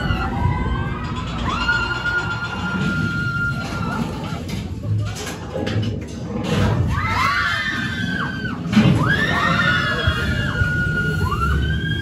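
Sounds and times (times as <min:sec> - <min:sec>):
riders screaming: 0:06.9 - 0:12.0.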